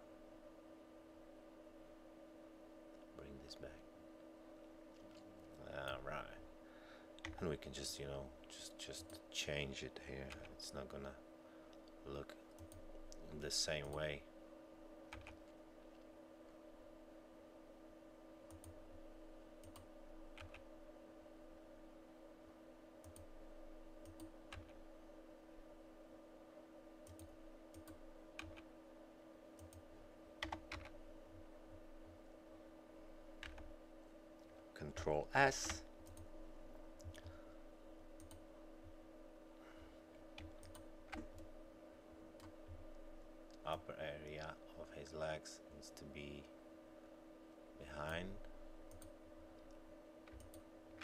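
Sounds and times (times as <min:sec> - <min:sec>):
faint hum: 0:00.0 - 0:51.0
computer keys and mouse clicking: 0:12.5 - 0:13.2, 0:15.1 - 0:15.6, 0:18.5 - 0:18.8, 0:19.6 - 0:20.7, 0:23.0 - 0:23.3, 0:24.0 - 0:24.8, 0:27.0 - 0:28.7, 0:29.6 - 0:29.8, 0:30.4 - 0:30.9, 0:33.4 - 0:33.7, 0:35.6 - 0:36.3, 0:37.0 - 0:37.3, 0:38.2 - 0:38.4, 0:40.4 - 0:41.5, 0:48.9 - 0:51.0.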